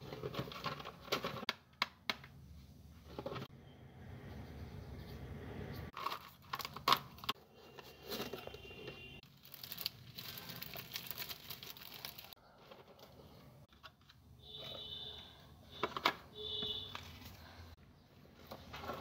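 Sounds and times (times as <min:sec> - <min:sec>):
plastic sheets crinkling: 0:06.0 - 0:12.4.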